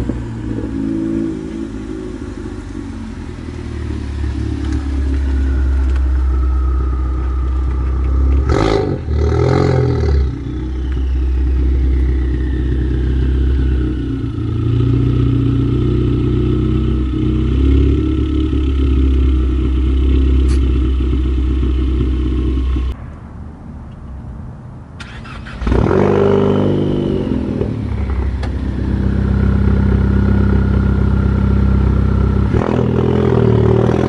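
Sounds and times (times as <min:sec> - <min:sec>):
car engine idling: 0:00.0 - 0:25.8, 0:26.7 - 0:32.6
engine throttle blip: 0:02.6 - 0:14.7, 0:25.0 - 0:32.7
faint whistle falling in pitch: 0:10.4 - 0:13.1.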